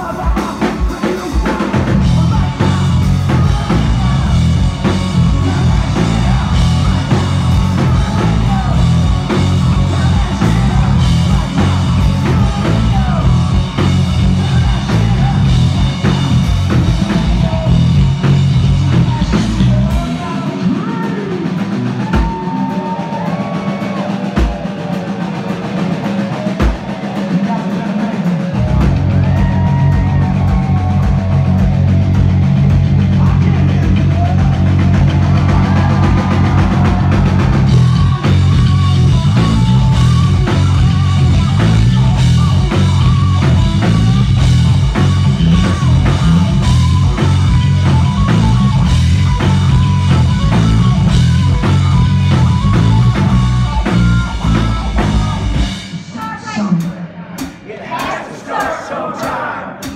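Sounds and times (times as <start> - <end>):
live rock band playing: 0.0 - 57.1
electric guitar notes bending: 30.0 - 55.8.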